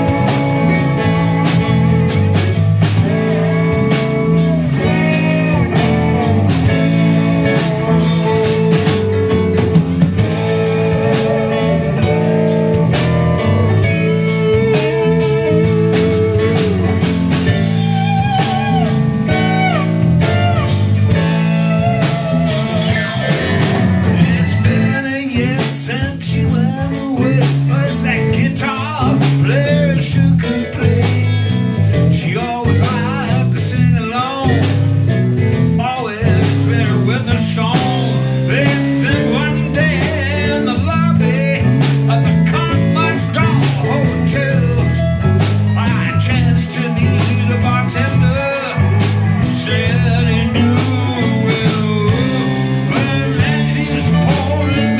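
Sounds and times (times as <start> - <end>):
blues-rock band playing: 0.0 - 54.9
lead guitar bending notes: 0.0 - 54.9.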